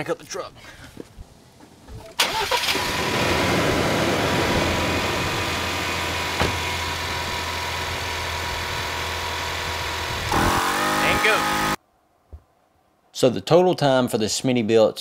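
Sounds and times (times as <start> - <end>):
truck engine idling: 3.1 - 10.4.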